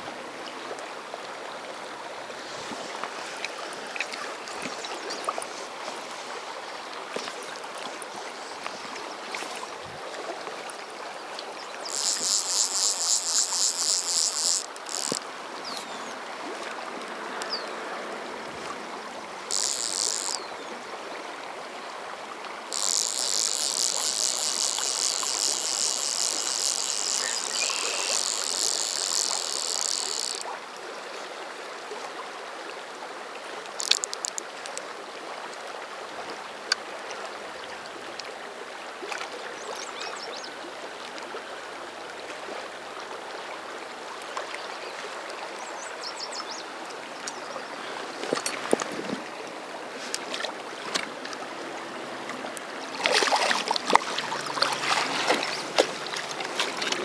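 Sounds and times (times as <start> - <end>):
river current rushing: 0.0 - 36.2, 46.7 - 57.0
high-pitched fast-ticking buzz: 11.9 - 15.2, 19.5 - 20.4, 22.7 - 30.5
sharp clicks: 11.9 - 15.9, 19.5 - 20.4, 22.7 - 30.5, 33.8 - 34.8.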